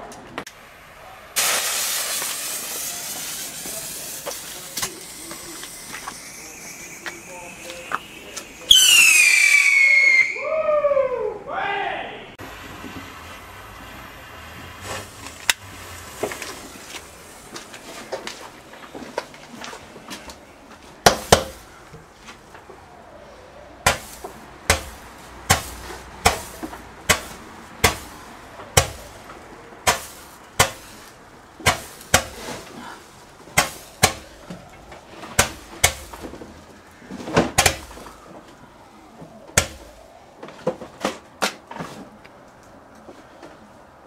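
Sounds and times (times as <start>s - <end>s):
firework bangs with echo: 1.4s - 10.3s.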